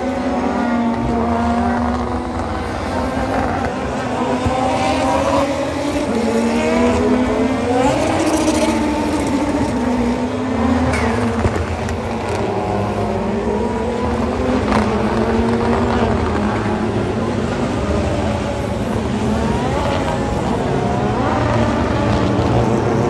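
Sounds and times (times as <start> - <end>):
race car engines passing: 0.0 - 23.0.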